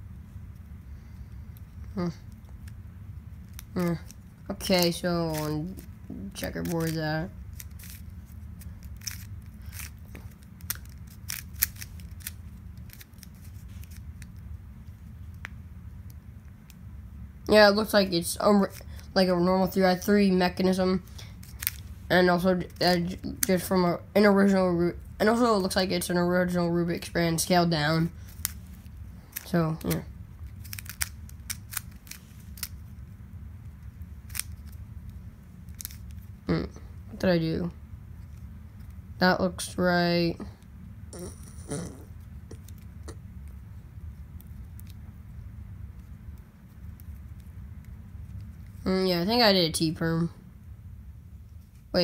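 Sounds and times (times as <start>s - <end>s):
low background hum: 0.0s - 52.0s
puzzle cube clicking: 3.4s - 14.5s, 21.4s - 21.8s, 29.3s - 32.9s, 34.3s - 34.8s, 35.7s - 36.3s
plastic puzzle cube clicks: 30.6s - 32.7s.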